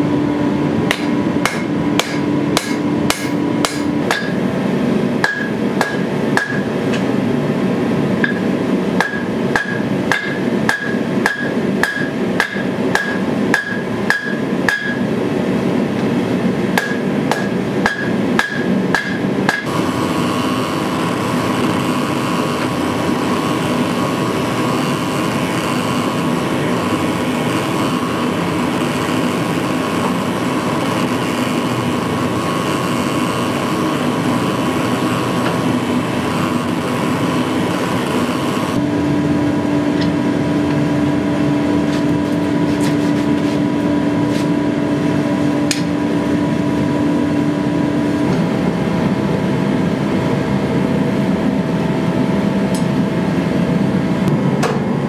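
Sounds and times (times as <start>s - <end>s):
steady machine hum: 0.0s - 55.0s
hammer striking steel on anvil: 0.9s - 4.5s, 5.2s - 7.1s, 8.2s - 15.1s, 16.8s - 19.7s.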